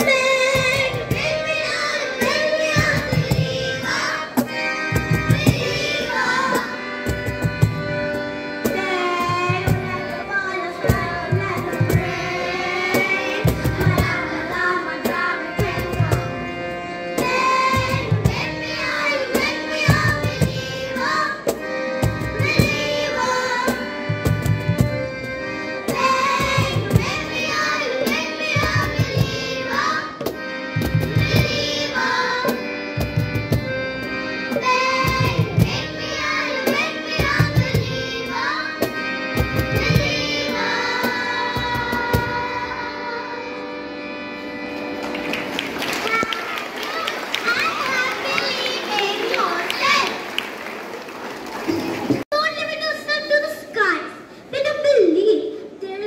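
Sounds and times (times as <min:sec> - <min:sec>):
girls singing into microphones: 0:39.7 - 0:43.6.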